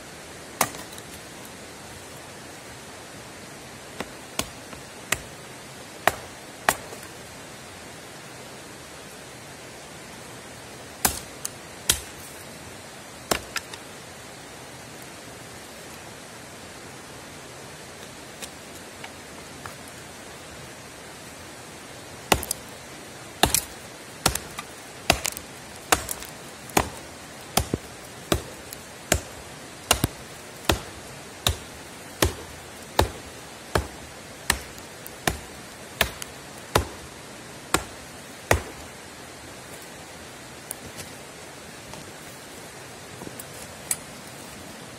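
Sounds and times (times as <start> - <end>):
axe chopping into a log: 0.6 - 1.0, 11.0 - 11.3, 11.9 - 12.1, 22.3 - 22.6, 23.4 - 27.0, 27.6 - 37.0, 37.7 - 38.8.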